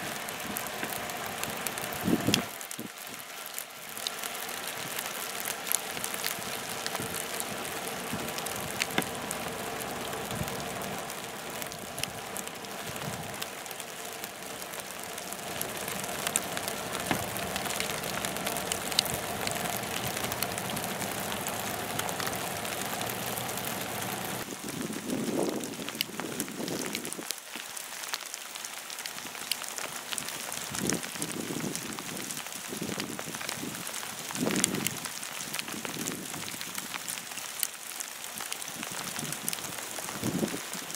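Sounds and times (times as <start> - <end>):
faint steady hum: 5.5 - 24.4.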